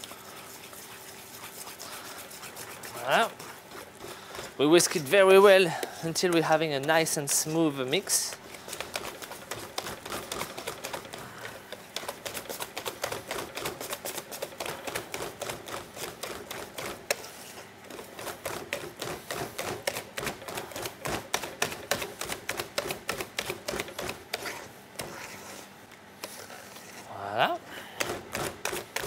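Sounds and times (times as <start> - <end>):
whisk clicking against metal bowl: 28.0 - 29.0.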